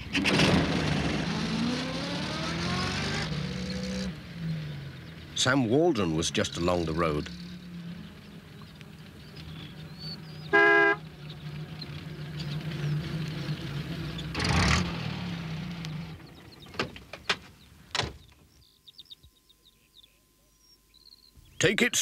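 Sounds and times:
small van engine running: 0.0 - 18.0
horn toot: 10.5 - 11.0.

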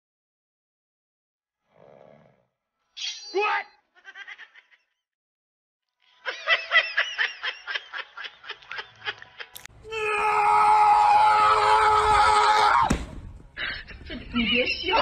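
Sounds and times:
drawn-out scream: 9.8 - 13.0.

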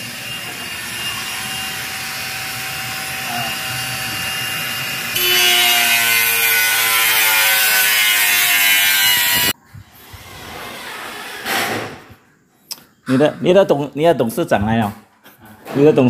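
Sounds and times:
power tool whining on metal: 0.0 - 11.5.

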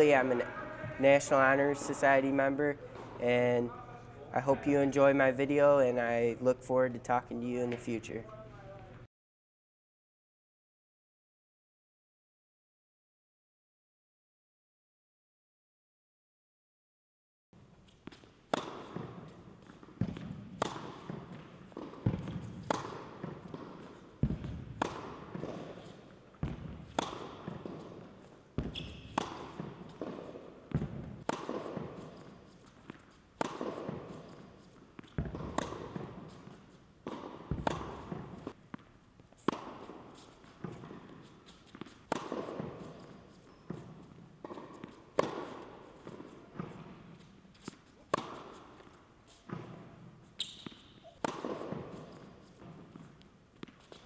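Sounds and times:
tennis ball off strings: 18.0 - 54.0
ball bouncing on court: 18.1 - 25.8, 26.4 - 32.1, 32.8 - 34.3, 35.0 - 38.9, 50.4 - 53.0.

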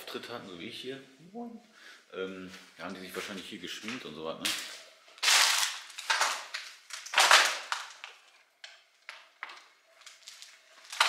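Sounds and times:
broken glass crunching: 4.5 - 11.0.

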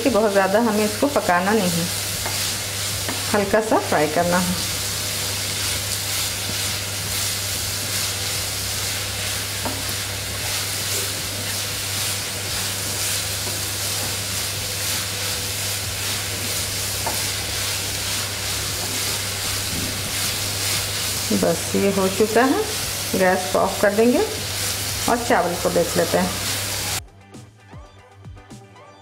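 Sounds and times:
carrots sizzling in oil: 0.0 - 27.0
spatula scraping and tapping pan: 2.2 - 3.4, 9.6 - 11.6, 16.4 - 17.4.

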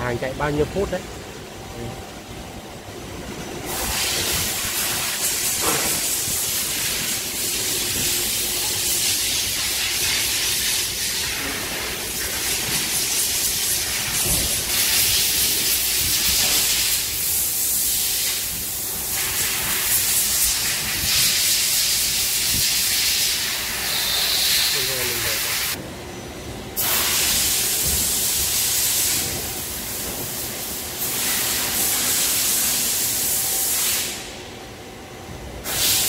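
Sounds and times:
loud machine hissing: 3.6 - 25.8, 26.8 - 34.4, 35.6 - 36.0.

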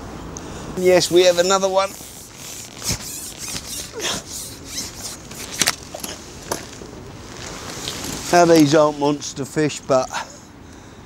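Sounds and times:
handling rustles and clicks: 1.8 - 8.7.

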